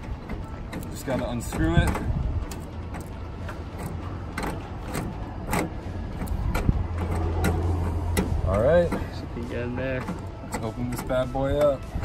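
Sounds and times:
light metallic clicks and taps: 0.0s - 9.2s.

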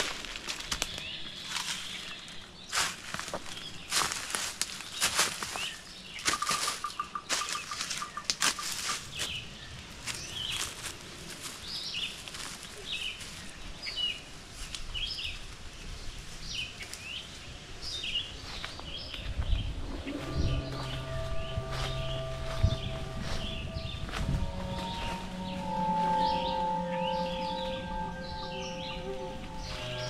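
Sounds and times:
footsteps crunching on forest floor: 0.0s - 9.4s, 10.0s - 13.6s, 18.4s - 30.0s
small birds chirping: 0.7s - 10.8s.

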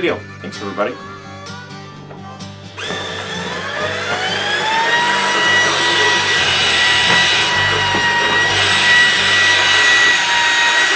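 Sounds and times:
stick vacuum motor whine: 2.4s - 10.9s
vacuum head on carpet: 2.8s - 10.9s.

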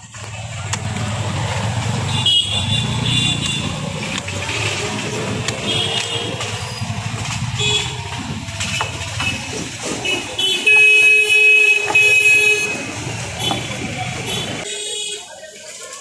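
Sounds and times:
road traffic: 0.0s - 16.0s
vehicle horn blasts: 2.1s - 3.7s, 10.0s - 15.3s.

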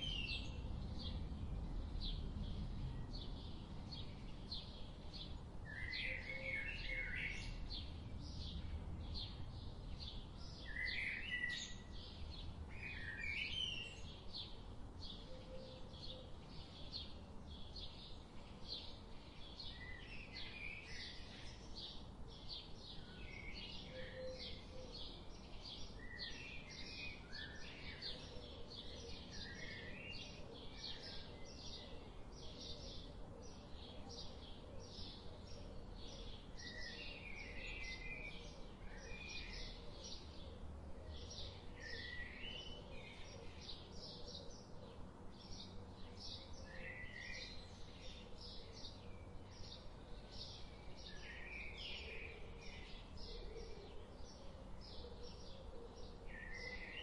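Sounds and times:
faint low rumble: 0.0s - 5.8s
songbirds chirping: 0.0s - 57.0s.

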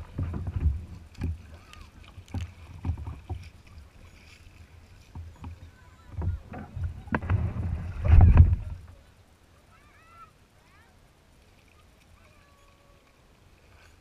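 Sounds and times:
knocks and scraping on kayak hull: 0.0s - 9.0s.

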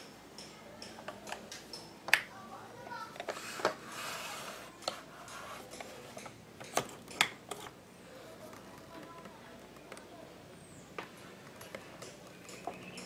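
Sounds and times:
soft scraping rustle: 3.0s - 6.4s.

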